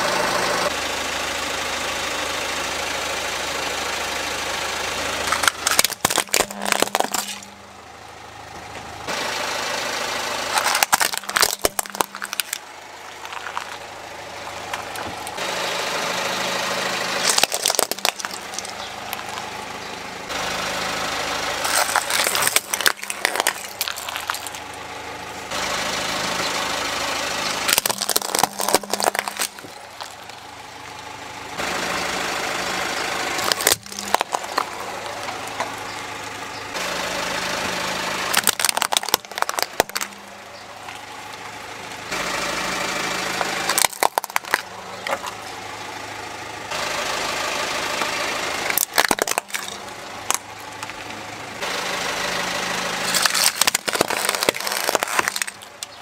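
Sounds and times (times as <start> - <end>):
car engine idling: 0.0 - 56.0
plastic toys cracking under tyre: 5.2 - 7.5, 10.5 - 13.8, 17.2 - 19.6, 21.6 - 24.8, 27.6 - 30.4, 33.4 - 35.8, 38.3 - 40.2, 43.4 - 45.5, 48.6 - 51.1, 53.0 - 56.0.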